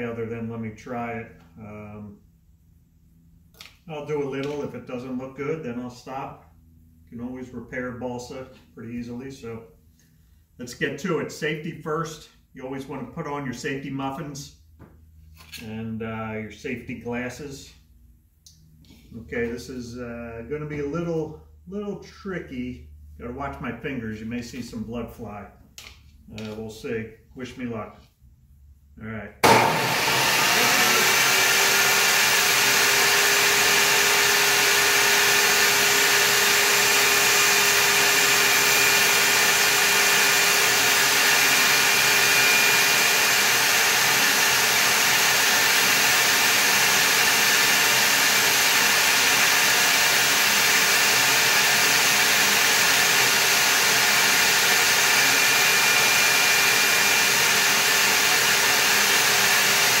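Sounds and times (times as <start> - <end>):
table saw cutting wood: 29.4 - 60.0.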